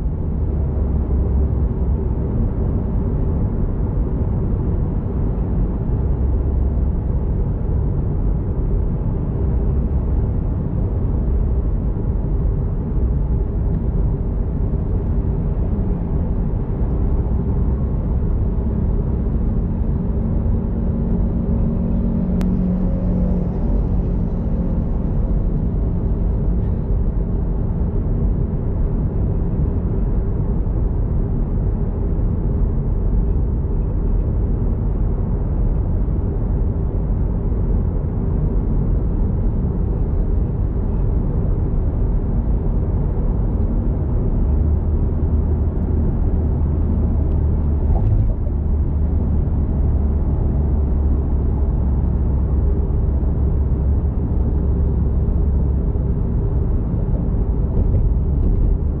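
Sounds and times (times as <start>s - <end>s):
car engine and tyre rumble: 0.0s - 59.0s
deep steady hum: 0.0s - 59.0s.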